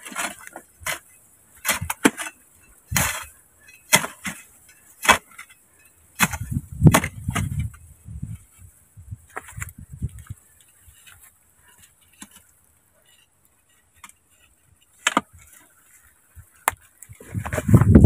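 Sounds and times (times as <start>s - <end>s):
hoe chopping into dry soil: 0.0s - 5.5s, 6.1s - 7.8s, 14.9s - 15.6s
earth scraping and knocking: 0.0s - 18.0s.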